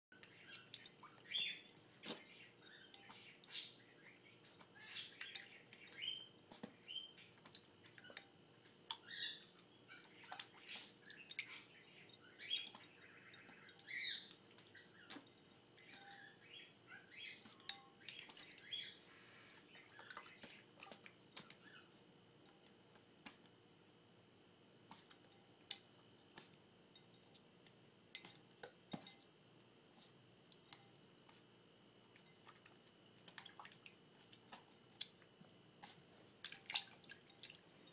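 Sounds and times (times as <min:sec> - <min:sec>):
puppy splashing in water bowl: 0:35.8 - 0:37.9.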